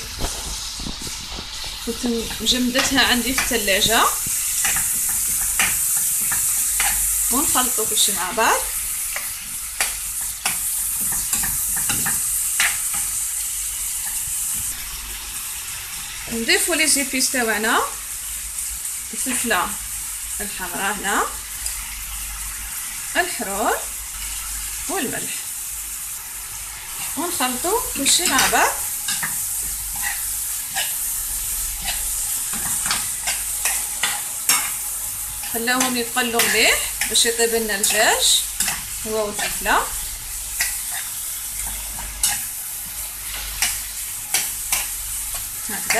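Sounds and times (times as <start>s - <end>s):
spoon scraping and knocking pan: 0.0s - 8.2s, 9.1s - 13.2s, 28.0s - 31.1s, 31.7s - 39.6s
food sizzling in a frying pan: 0.0s - 45.9s.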